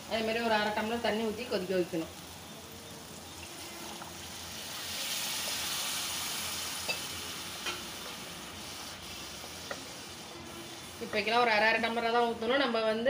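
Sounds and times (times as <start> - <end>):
masala sizzling and hissing: 0.0 - 13.0
water poured into hot pan: 3.0 - 9.4.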